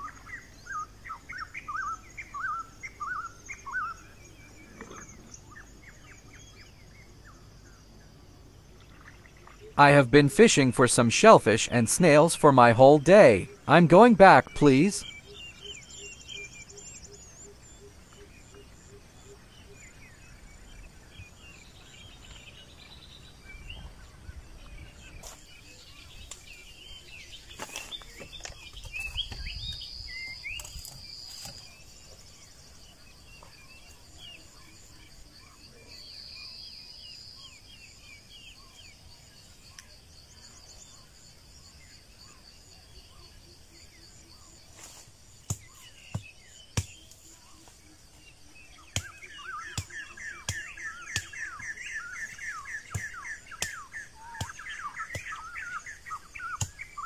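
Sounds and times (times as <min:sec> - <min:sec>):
bird calls: 0:00.0 - 0:57.0
insects chirring: 0:00.0 - 0:57.0
knife knocking and scraping bamboo: 0:30.6 - 0:31.7.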